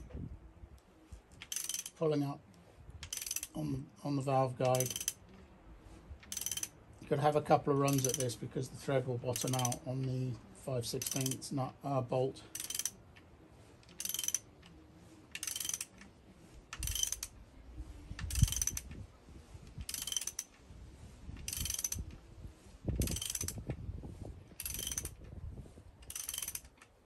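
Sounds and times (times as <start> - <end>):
socket ratchet clicking: 1.4 - 2.0, 3.0 - 3.6, 4.7 - 5.2, 6.2 - 6.7, 7.9 - 8.4, 9.3 - 9.8, 11.0 - 11.4, 12.5 - 13.0, 13.9 - 14.5, 15.3 - 16.1, 16.7 - 17.4, 18.2 - 19.0, 19.8 - 20.6, 21.4 - 22.1, 23.0 - 23.6, 24.6 - 25.2, 26.0 - 26.9.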